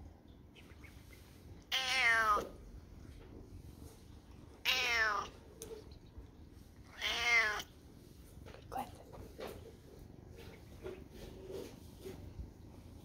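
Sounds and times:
cat meowing: 1.7s - 2.6s, 4.6s - 5.4s, 6.9s - 7.7s.

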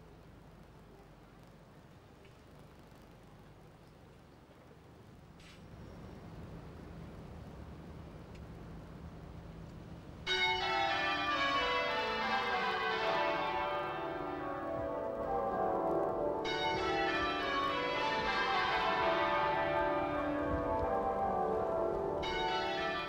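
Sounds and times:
church bells pealing: 10.3s - 23.0s.

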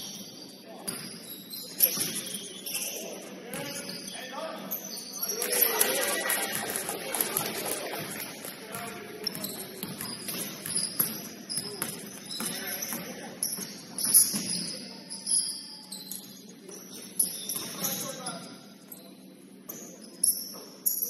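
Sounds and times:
shoes squeaking on court: 0.0s - 19.0s
murmur of voices: 0.6s - 20.8s
basketball bouncing thuds: 8.7s - 14.6s.

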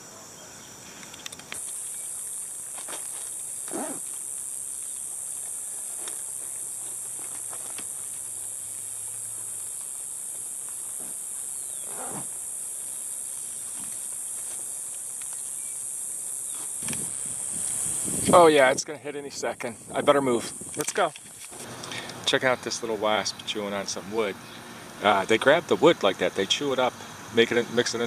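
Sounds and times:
insects chirping: 0.0s - 28.0s
low animal calls: 11.8s - 12.3s.

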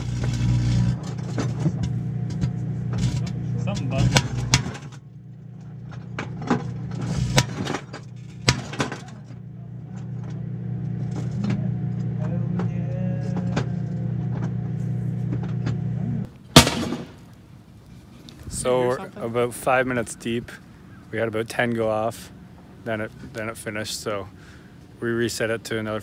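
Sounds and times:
microwave oven humming: 0.0s - 16.3s.

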